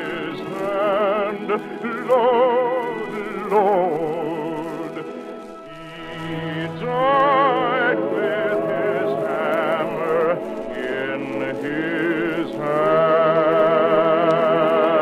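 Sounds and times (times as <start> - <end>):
choir singing held notes: 0.0 - 15.0.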